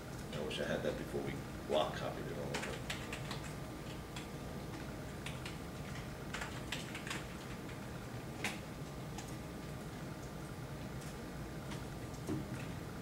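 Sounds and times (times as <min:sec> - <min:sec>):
steady low hum: 0:00.0 - 0:13.0
keyboard keys clicking: 0:02.5 - 0:07.6.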